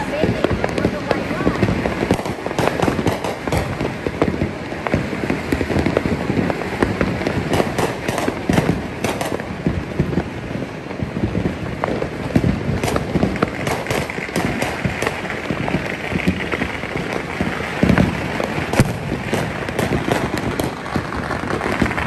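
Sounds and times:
fireworks crackling and banging: 0:00.0 - 0:22.0.

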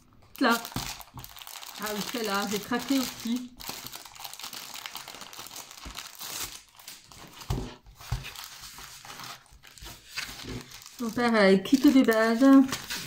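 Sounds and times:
plastic packaging crinkling: 0:00.2 - 0:13.0.

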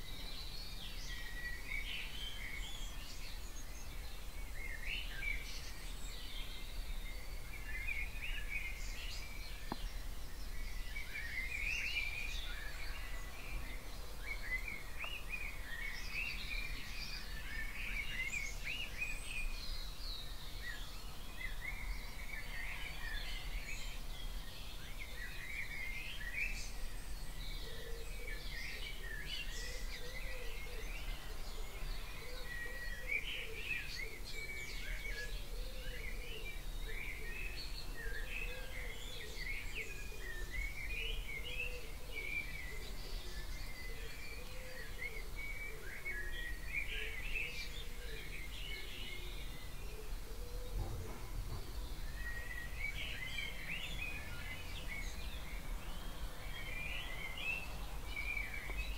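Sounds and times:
songbirds singing: 0:00.0 - 0:58.9.

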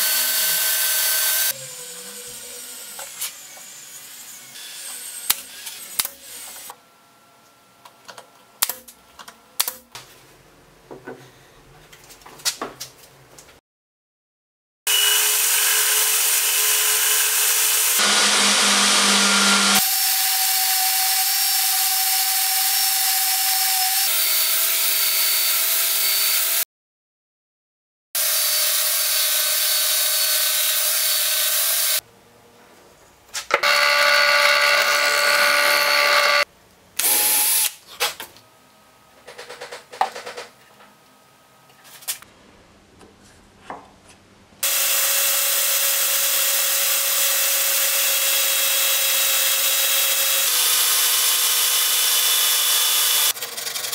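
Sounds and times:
belt sander whining: 0:17.9 - 0:19.8, 0:33.6 - 0:36.5.

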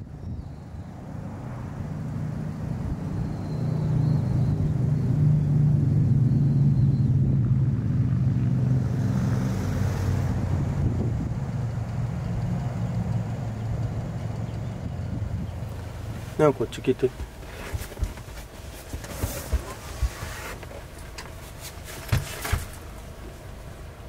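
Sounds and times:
wind on microphone: 0:00.0 - 0:11.7, 0:14.6 - 0:16.0
traffic engine drone: 0:00.0 - 0:24.0.

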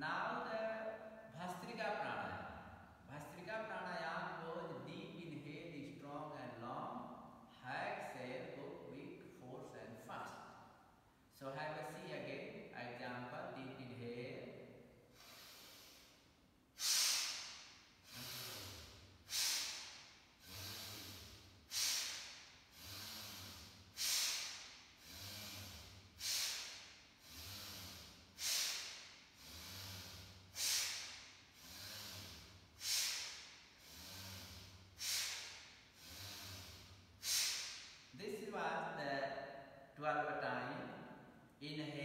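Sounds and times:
forceful breathing through the nose: 0:15.1 - 0:38.1.

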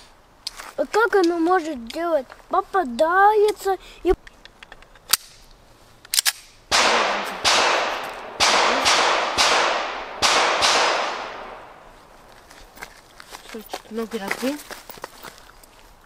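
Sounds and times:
pistol shots with echo: 0:06.7 - 0:11.8.

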